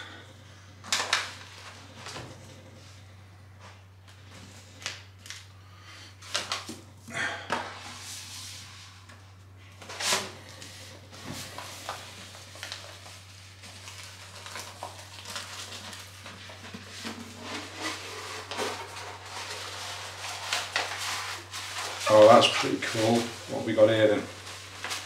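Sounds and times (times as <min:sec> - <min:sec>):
paper rustling and crinkling: 0:00.8 - 0:02.4, 0:06.2 - 0:06.8, 0:09.8 - 0:25.0.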